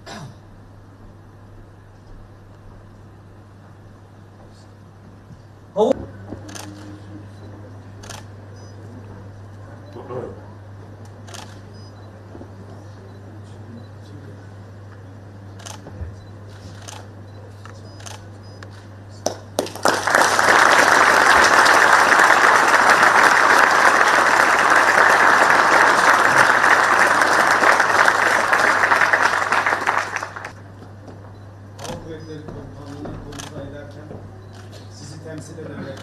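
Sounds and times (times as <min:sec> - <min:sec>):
audience applauding: 0:19.2 - 0:30.6.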